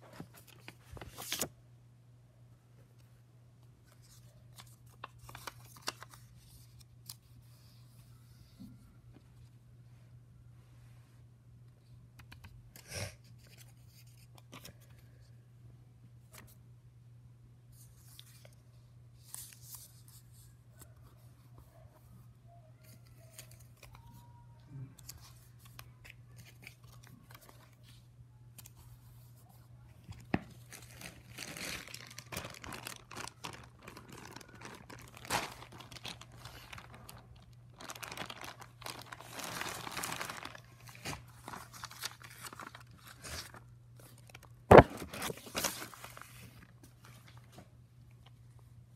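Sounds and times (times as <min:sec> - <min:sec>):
plastic packet crinkling: 0:30.6 - 0:46.4.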